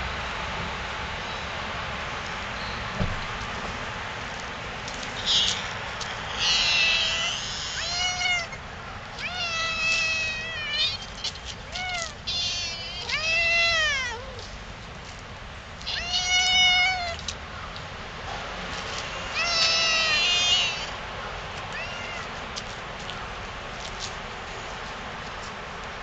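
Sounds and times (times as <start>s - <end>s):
cats meowing loudly: 5.2s - 8.6s, 9.2s - 14.4s, 15.8s - 17.3s, 19.0s - 21.0s, 21.7s - 22.4s.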